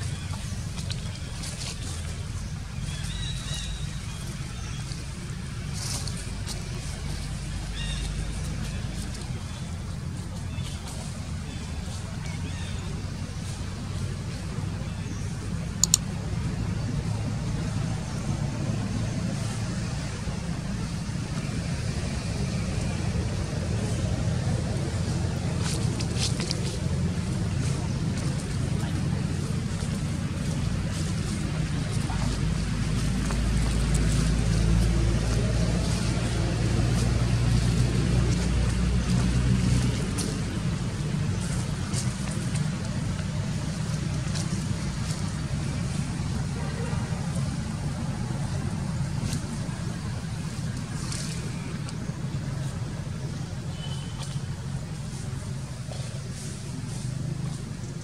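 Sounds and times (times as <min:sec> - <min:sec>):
engine humming: 0:00.0 - 0:58.0
low outdoor rumble: 0:00.0 - 0:58.0
sharp clicks: 0:15.8 - 0:16.1.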